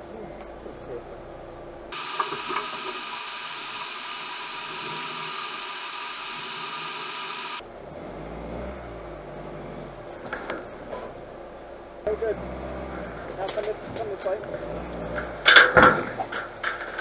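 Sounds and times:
engine rumbling: 0.0s - 17.0s
steady hiss: 1.9s - 7.6s.

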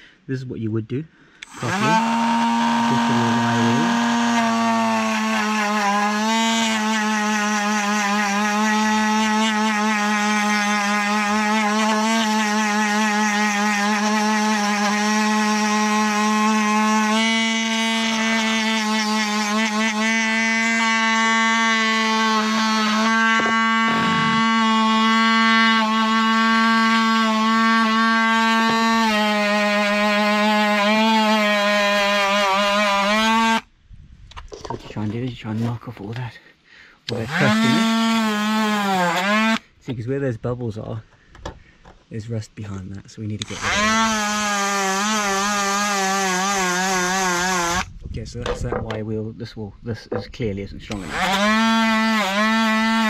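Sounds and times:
rotary tool wire brush whine: 1.4s - 33.6s, 37.1s - 39.6s, 43.4s - 47.9s, 50.9s - 53.0s.

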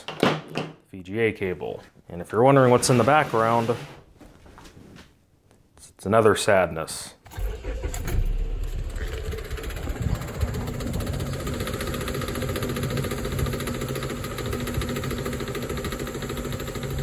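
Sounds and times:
car engine idling: 7.4s - 17.0s.

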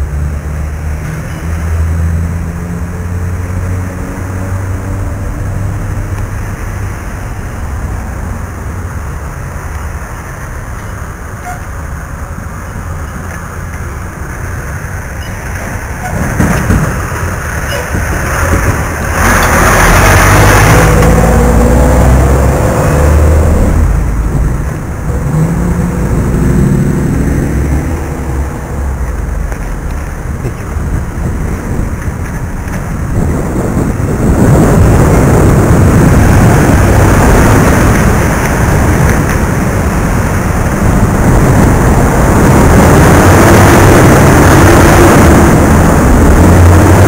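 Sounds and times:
heavy truck passing: 0.0s - 47.0s
road traffic: 0.0s - 47.0s
wind rumbling on microphone: 0.0s - 47.0s.

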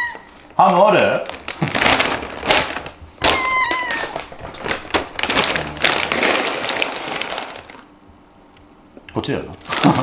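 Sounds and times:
cat meowing: 0.0s - 0.4s, 3.2s - 4.4s
cat food bag crinkling: 0.6s - 7.9s, 9.6s - 10.0s.

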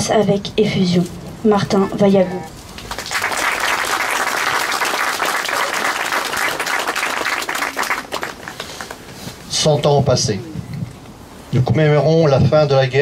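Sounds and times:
crowd applauding: 2.8s - 9.1s.

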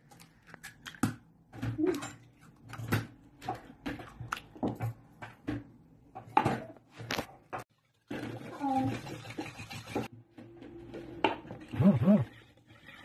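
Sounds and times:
eggs cracking into a plastic bowl: 0.0s - 1.9s.

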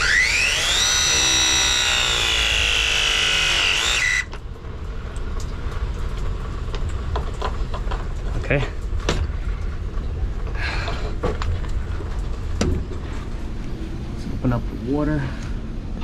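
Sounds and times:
pipe press motor whine: 0.0s - 4.5s.

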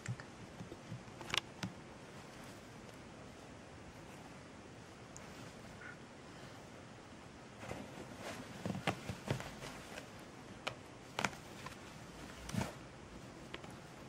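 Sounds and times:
kitten rustling in fabric bed: 7.6s - 10.4s, 11.0s - 14.0s.

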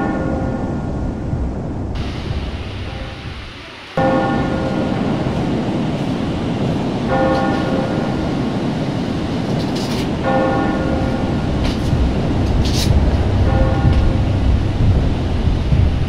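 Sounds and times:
steady low rumble: 0.0s - 16.0s
bell tolling: 2.0s - 6.0s, 7.0s - 8.6s, 9.4s - 15.3s.

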